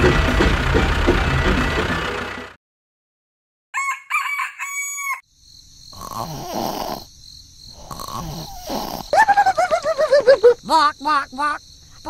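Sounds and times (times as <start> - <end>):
person snoring: 5.9 - 7.1, 7.7 - 9.2.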